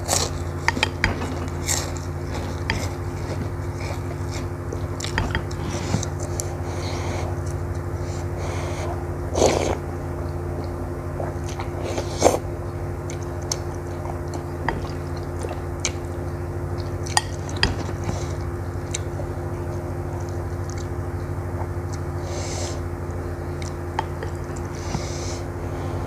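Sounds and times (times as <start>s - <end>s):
steady low hum: 0.0s - 26.0s
chewing with sharp clicks: 13.0s - 16.1s, 20.2s - 21.0s, 23.6s - 24.7s.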